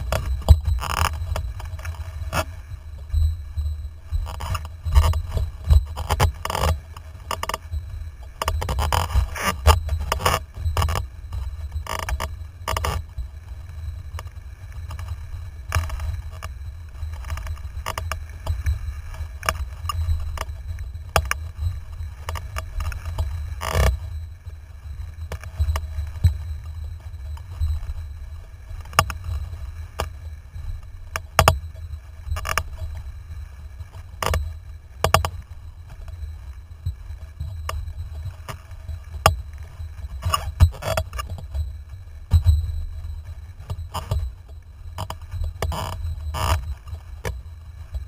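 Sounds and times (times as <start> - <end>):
wind rumble on microphone: 0.0 - 48.0.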